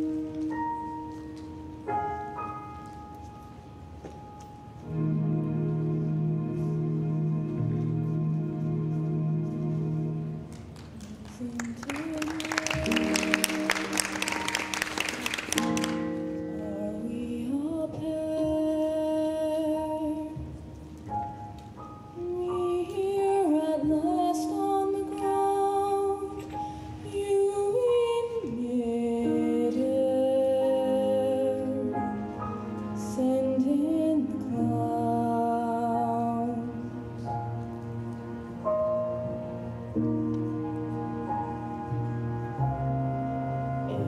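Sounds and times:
instrumental accompaniment: 0.0s - 44.0s
soft music: 0.0s - 44.0s
audience applause: 10.5s - 16.0s.

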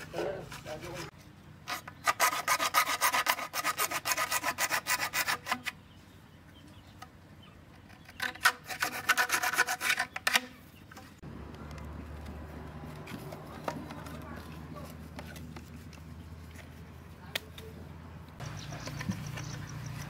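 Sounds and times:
hacksaw sawing plastic pipe: 1.7s - 5.8s, 8.0s - 10.5s.

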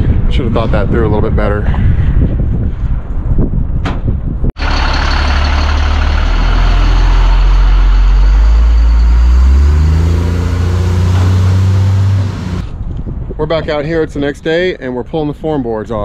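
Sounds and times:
truck engine passing: 4.6s - 12.7s.

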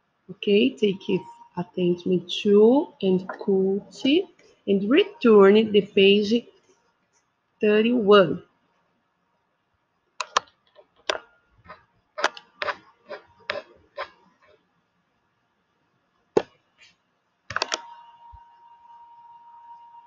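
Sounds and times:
computer mouse clicking: 10.2s - 11.2s.

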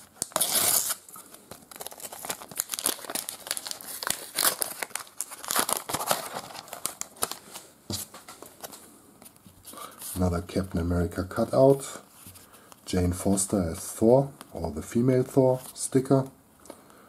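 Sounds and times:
wrapper tearing and crinkling: 0.0s - 7.6s.

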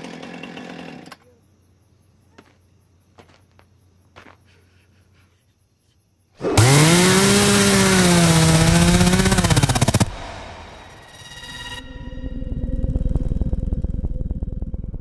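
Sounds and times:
chainsaw revving: 0.0s - 1.2s, 6.4s - 11.0s.

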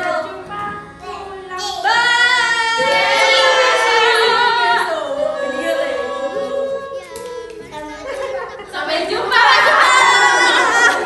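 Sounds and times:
women singing devotional song: 1.8s - 7.0s.

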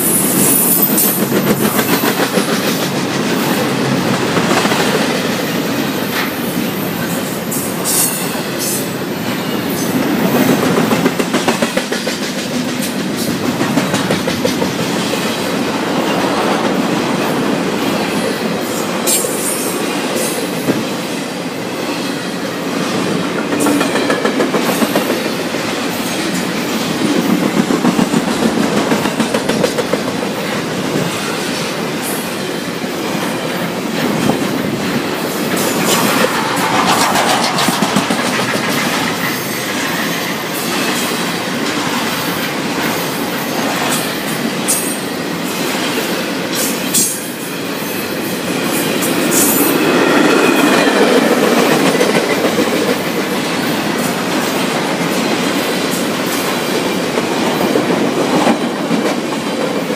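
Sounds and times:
freight train rumbling past: 0.0s - 59.9s
wheels clicking over rail joints: 34.0s - 40.1s.

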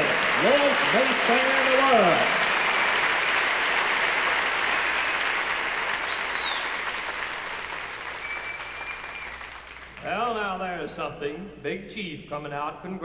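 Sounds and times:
audience applauding: 0.0s - 10.3s
crowd whistle: 4.5s - 7.0s, 8.1s - 9.9s.

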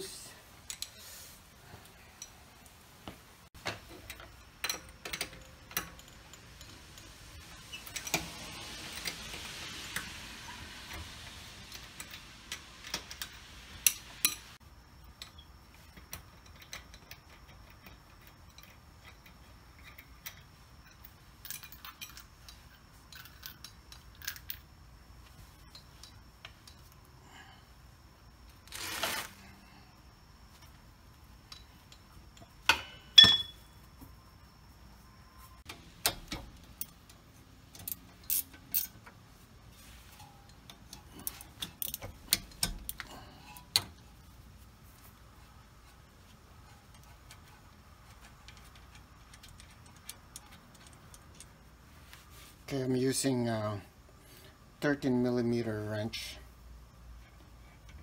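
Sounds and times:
lug nuts clicking and clinking: 3.6s - 9.4s, 40.1s - 44.0s, 46.8s - 51.6s.

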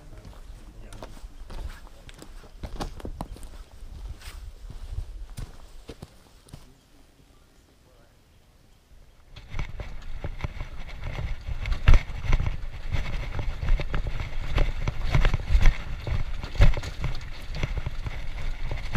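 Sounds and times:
wheels knocking and rattling over stones: 9.3s - 18.9s.

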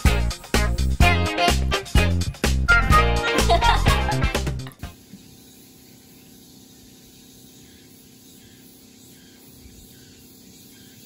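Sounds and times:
insects chirping: 4.9s - 11.0s.

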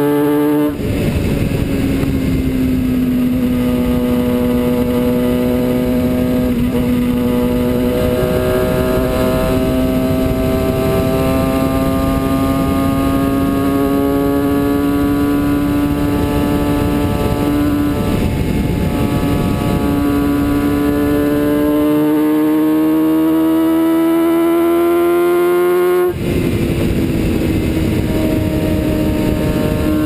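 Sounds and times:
motorcycle engine at speed: 0.0s - 30.0s
wind rushing on camera: 0.0s - 30.0s.

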